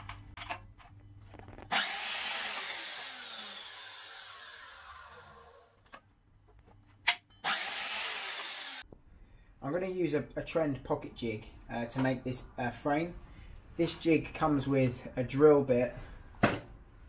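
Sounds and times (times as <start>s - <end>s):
mitre saw cutting wood: 1.7s - 5.7s, 7.4s - 8.8s.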